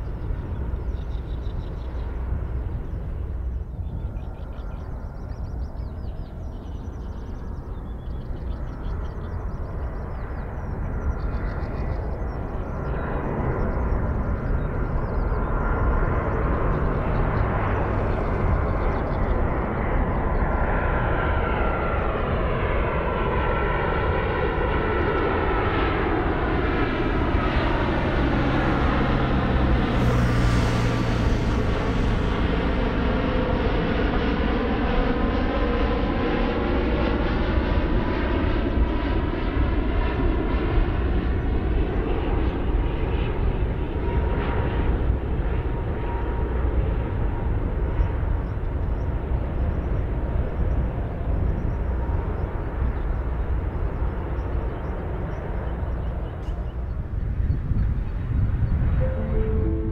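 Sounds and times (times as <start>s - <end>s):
jet airliner approaching overhead: 0.0s - 59.9s
falling multi-tone engine whine: 6.8s - 59.9s.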